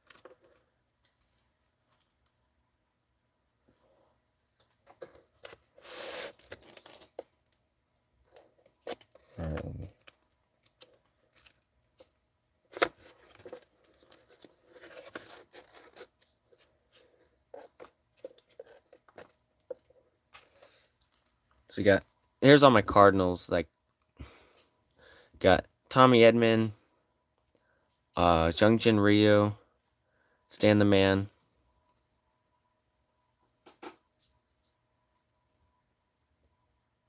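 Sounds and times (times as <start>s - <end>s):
trading cards rustling and sliding: 4.9s - 7.4s, 12.7s - 21.3s.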